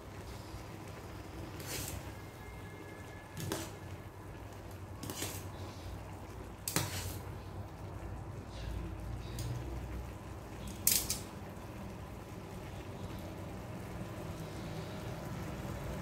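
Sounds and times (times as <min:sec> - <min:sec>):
kitchen handling noises: 0:05.0 - 0:05.6, 0:06.6 - 0:07.3.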